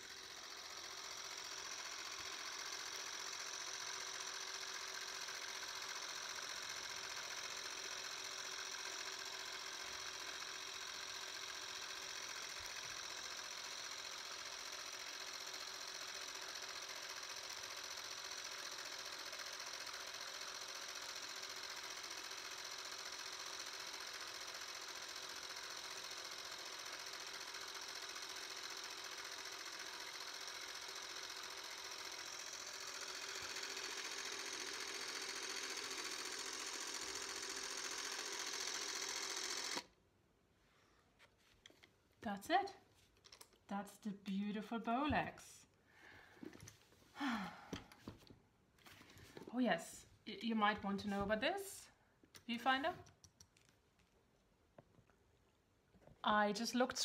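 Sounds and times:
cine camera mechanical whirr: 0:00.0 - 0:40.0.

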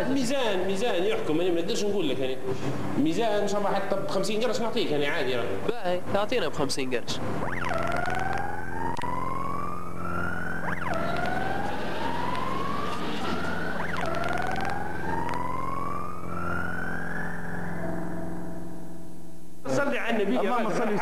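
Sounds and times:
steady low hum: 0:00.0 - 0:21.0
siren rising in pitch: 0:07.2 - 0:19.3.

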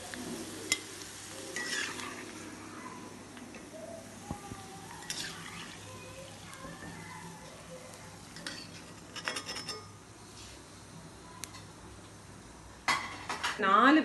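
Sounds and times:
metal skimmer clinking on iron pan: 0:08.4 - 0:10.0.

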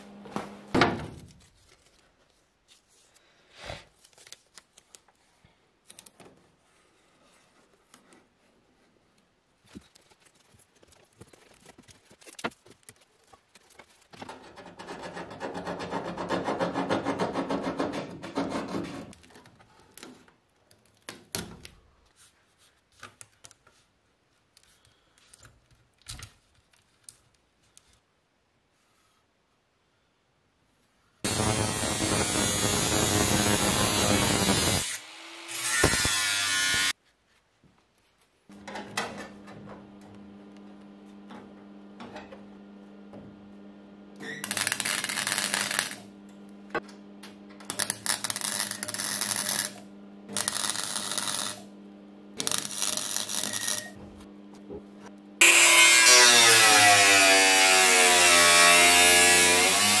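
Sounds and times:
angle grinder cutting steel: 0:31.3 - 0:36.9, 0:44.4 - 0:46.1, 0:47.7 - 0:51.7, 0:52.4 - 0:54.0, 0:55.4 - 1:00.0
mig welding bursts: 0:31.3 - 0:36.9, 0:44.4 - 0:46.1, 0:47.7 - 0:51.7, 0:52.4 - 0:54.0
power tool running: 0:31.3 - 0:36.9, 0:44.2 - 0:54.0, 0:55.4 - 1:00.0.

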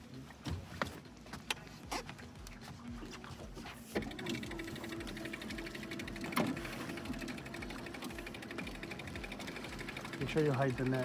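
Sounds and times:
fishing reel whirring: 0:04.0 - 0:11.0.

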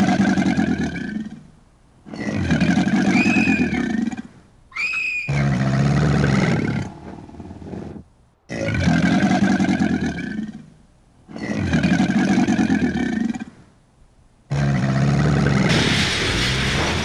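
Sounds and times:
dinosaur roars: 0:02.1 - 0:13.6, 0:14.5 - 0:17.0
short high shriek: 0:03.1 - 0:03.8, 0:04.8 - 0:05.4, 0:15.7 - 0:17.0.

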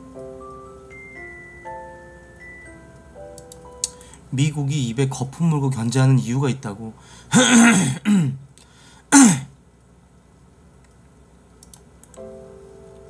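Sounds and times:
soft bell-like background music: 0:00.0 - 0:04.0, 0:12.2 - 0:13.0
faint clicks: 0:11.6 - 0:12.2.

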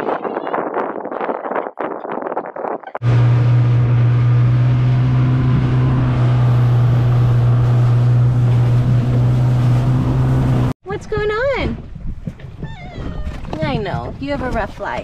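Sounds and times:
outboard motor humming: 0:03.0 - 0:10.8
rushing boat wake: 0:03.0 - 0:10.8.

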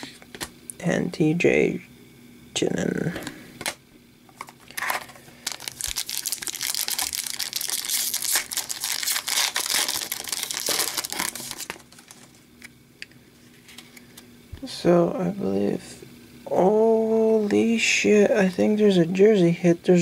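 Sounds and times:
foil wrapper crinkling and tearing: 0:04.7 - 0:12.5.

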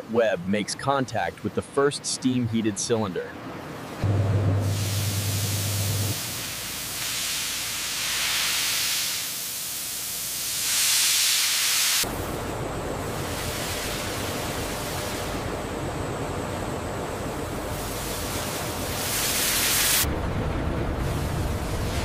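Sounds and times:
low hum: 0:04.0 - 0:06.8
steam hissing: 0:04.0 - 0:12.3, 0:13.1 - 0:15.5, 0:17.6 - 0:20.1.

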